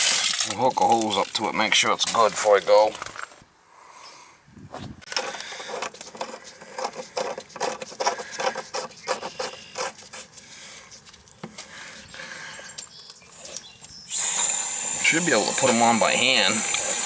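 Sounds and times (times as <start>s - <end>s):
glove rubbing: 4.8s - 12.4s
hose coupling metal clicks and scrapes: 5.0s - 10.4s.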